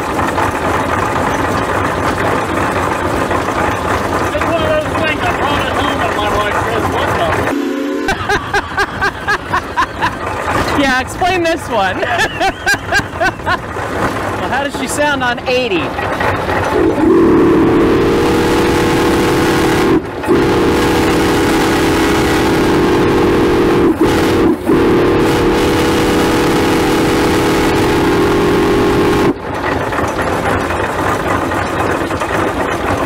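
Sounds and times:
steam engine running: 0:00.0 - 0:33.0
steam whistle blasts: 0:07.5 - 0:08.2, 0:16.8 - 0:29.4.

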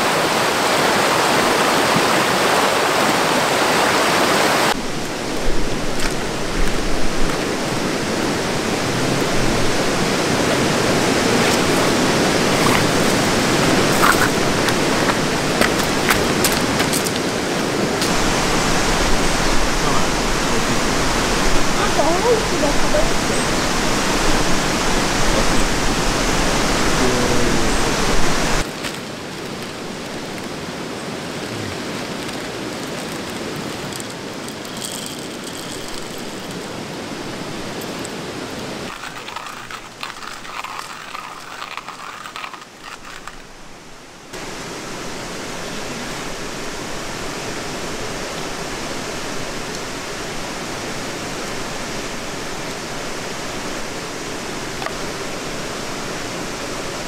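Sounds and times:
river rushing over stones: 0:00.0 - 0:57.0.

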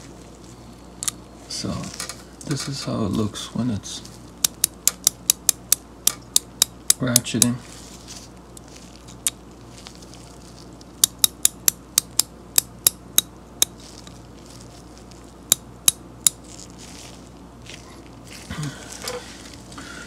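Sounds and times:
ratchet clicking: 0:04.4 - 0:07.6, 0:11.0 - 0:13.7.

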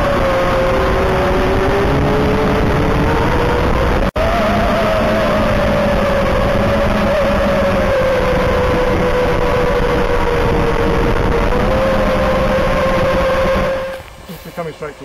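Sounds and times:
drone propellers whining: 0:00.0 - 0:15.0
rush of air noise: 0:00.0 - 0:15.0.

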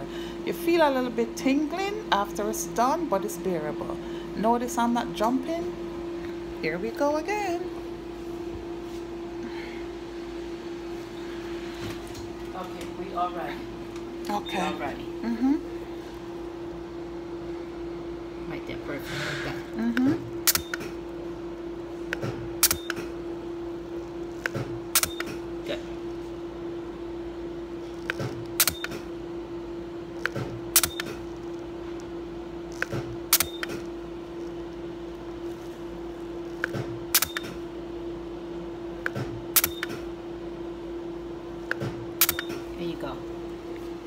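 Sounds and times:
steady hum: 0:00.0 - 0:44.0
laser handpiece clicks: 0:30.2 - 0:31.2.

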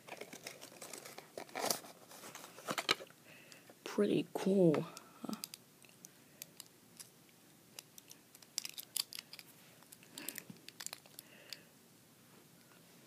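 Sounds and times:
packaging clicking and crinkling: 0:00.0 - 0:03.1, 0:07.8 - 0:11.6.

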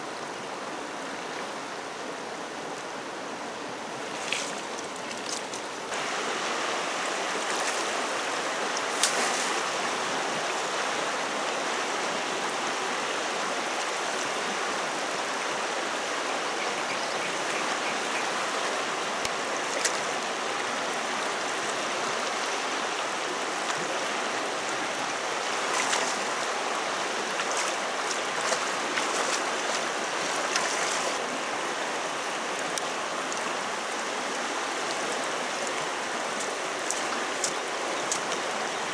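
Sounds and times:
river rushing: 0:00.0 - 0:38.9
splashes in water: 0:08.9 - 0:09.8, 0:27.3 - 0:31.2.

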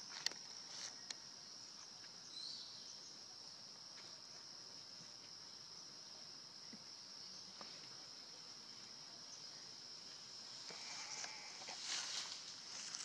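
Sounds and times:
high-pitched insect drone: 0:10.5 - 0:13.0.

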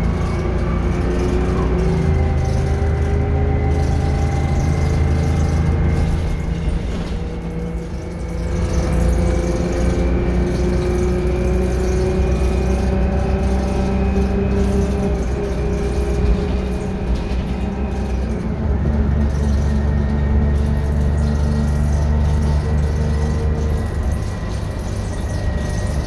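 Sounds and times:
bus diesel engine drone: 0:00.0 - 0:26.0
rising whine: 0:00.0 - 0:26.0.

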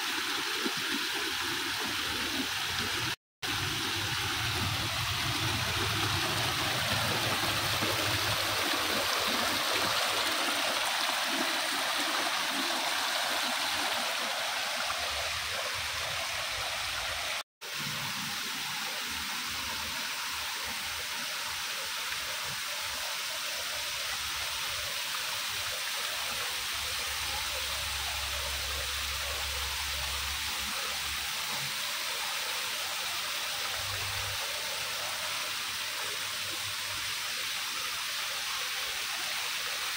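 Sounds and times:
waterfall splashing over rocks: 0:00.0 - 0:39.9.

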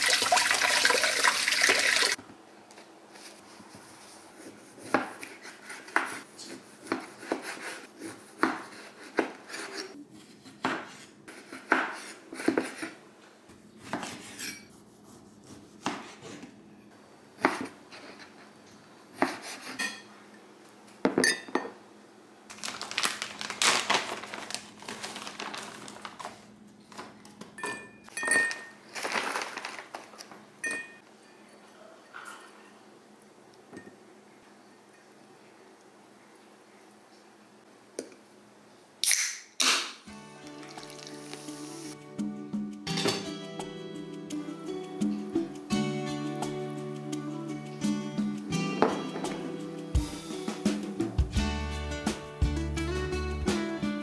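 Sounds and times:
kitchen tap running: 0:00.0 - 0:02.2.

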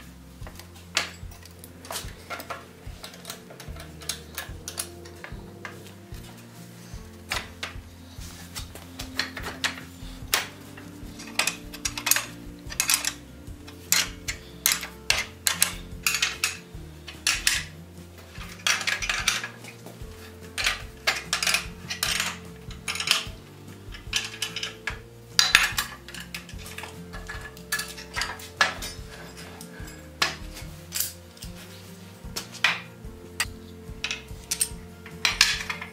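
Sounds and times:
faint background music: 0:00.0 - 0:35.9.

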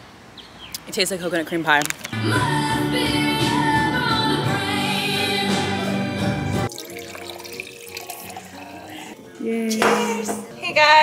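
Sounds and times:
music with singing voice: 0:02.2 - 0:06.7
wine pouring into glass: 0:06.7 - 0:09.2.

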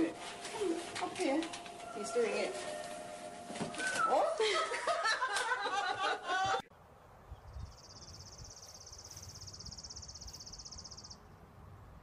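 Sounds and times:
high-pitched songbird trill: 0:07.4 - 0:11.2.

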